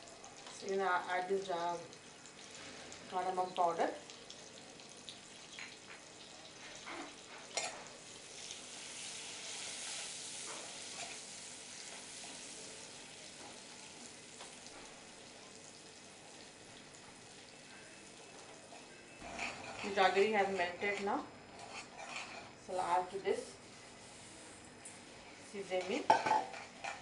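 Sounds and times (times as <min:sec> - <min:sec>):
butter sizzling in a pan: 0:00.0 - 0:21.0
metal spoon scraping a pan: 0:09.0 - 0:11.3, 0:19.2 - 0:22.6, 0:25.6 - 0:27.0.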